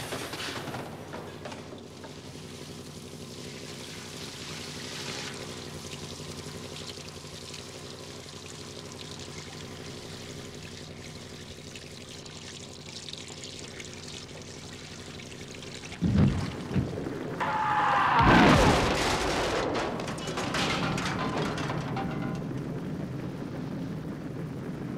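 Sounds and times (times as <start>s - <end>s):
low steady hum: 0.0s - 24.9s
fuel splashing onto concrete: 1.7s - 17.4s.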